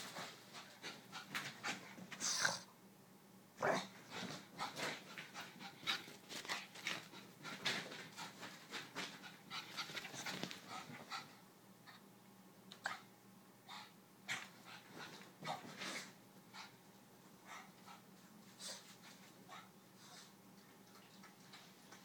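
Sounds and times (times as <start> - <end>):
dog panting: 4.1 - 12.0, 17.4 - 20.3.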